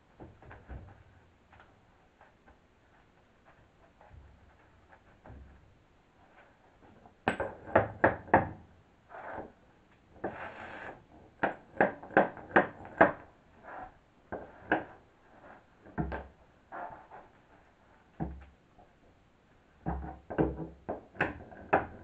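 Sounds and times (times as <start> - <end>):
short scrape: 10.3 - 11.0.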